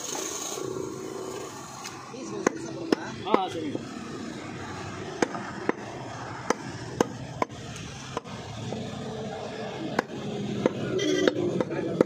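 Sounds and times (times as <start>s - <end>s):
cleaver chopping on wooden block: 6.4s - 8.3s.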